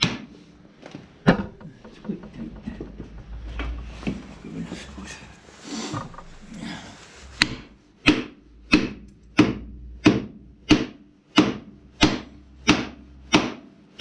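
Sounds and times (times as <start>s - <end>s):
hammer striking wooden block: 7.4s - 14.0s.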